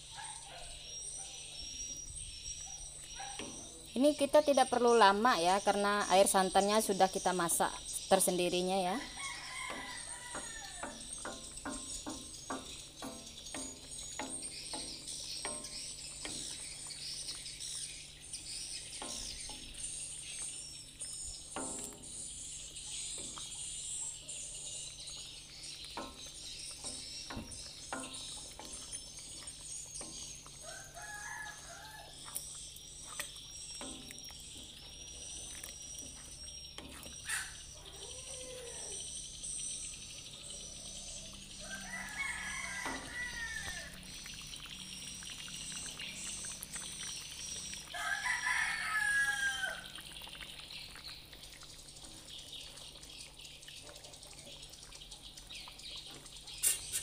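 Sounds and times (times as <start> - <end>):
high bird chirping: 0.2 - 48.1
stew simmering and popping: 0.9 - 57.0
rooster crowing: 9.0 - 11.0, 30.6 - 32.2, 41.6 - 44.0, 47.9 - 50.0
chickens calling: 37.1 - 39.1, 40.6 - 51.4.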